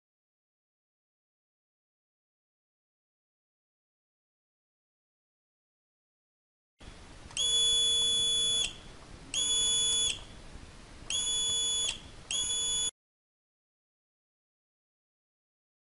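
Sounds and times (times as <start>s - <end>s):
multimeter continuity buzzer beeping: 7.4s - 10.3s, 11.1s - 12.9s.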